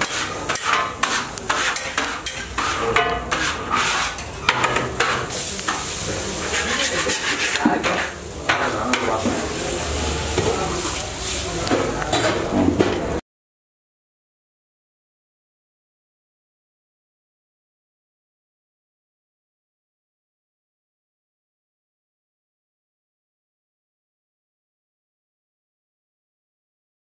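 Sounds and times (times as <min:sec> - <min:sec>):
metal spatula scraping and tapping griddle: 0:00.0 - 0:09.4, 0:11.6 - 0:13.0
frying hiss: 0:00.0 - 0:13.2.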